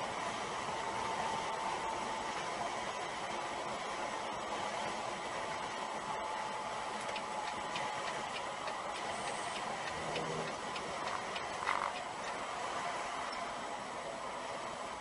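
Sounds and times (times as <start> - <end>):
truck road and engine noise: 0.0 - 15.0
turn signal clicking: 7.0 - 12.4.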